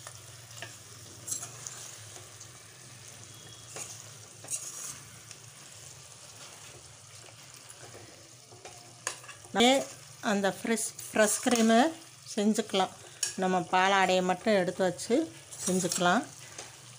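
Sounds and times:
faint sizzling: 0.0s - 16.9s
spoon scraping a pan: 0.5s - 2.4s, 3.2s - 10.1s, 11.0s - 11.8s, 13.0s - 13.5s, 15.4s - 16.8s
spoon stirring thick gravy: 3.3s - 10.1s.

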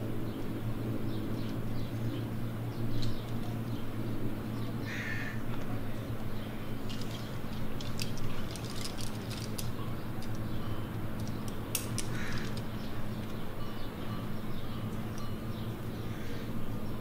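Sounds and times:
steady low hum: 0.0s - 17.0s
bird calling: 4.5s - 17.0s
climbing gear clinking: 6.8s - 14.2s.

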